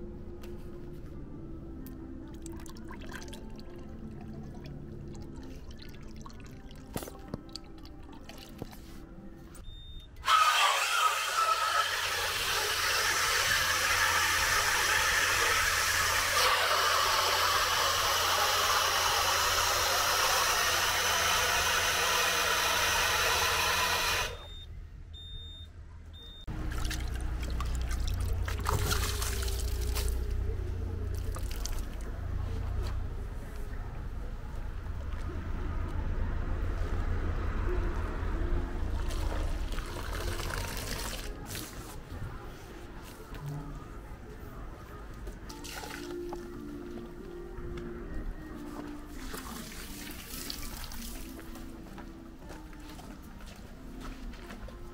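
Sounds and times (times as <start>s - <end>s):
water jet spraying hiss: 10.3s - 24.4s.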